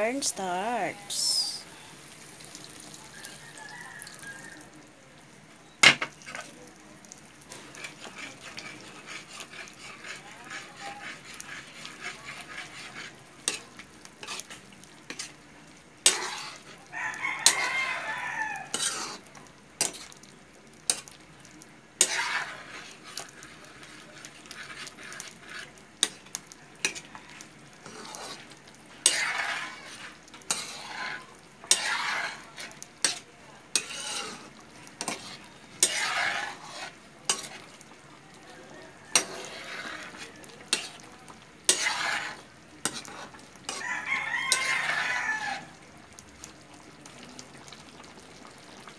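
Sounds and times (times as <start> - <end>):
light sizzle: 0.0 - 48.9
rooster crowing: 3.0 - 4.8, 16.9 - 18.7, 38.5 - 39.5, 43.7 - 45.8
metal ladle scraping a wok: 7.5 - 15.4, 16.0 - 16.8, 17.4 - 18.0, 18.6 - 20.2, 22.0 - 27.2, 27.8 - 37.9, 39.0 - 45.7.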